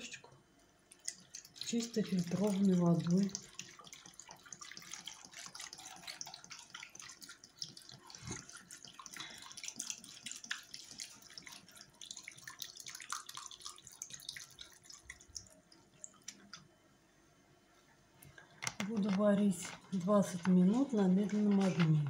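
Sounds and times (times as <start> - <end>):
water pouring into a pot: 0.9 - 16.6.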